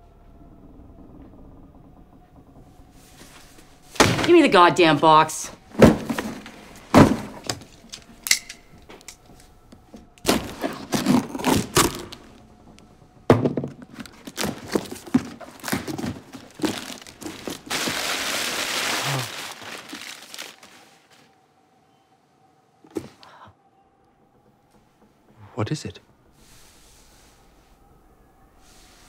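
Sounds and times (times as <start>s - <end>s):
cardboard box knocks and crinkles: 5.7s - 7.6s, 13.3s - 20.8s
paper and tape ripping: 15.6s - 21.2s.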